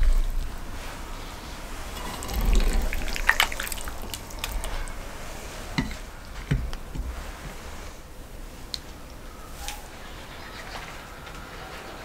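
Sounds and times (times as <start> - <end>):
juicy food squelches: 1.8 - 5.2.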